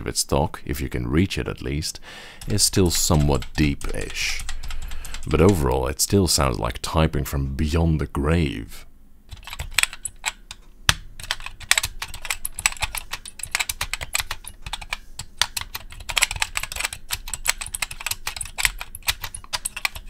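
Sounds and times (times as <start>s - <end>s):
fast keyboard typing: 2.4s - 5.7s, 9.3s - 10.6s, 11.2s - 20.0s
key switches squeaking: 9.3s - 10.6s, 11.2s - 20.0s.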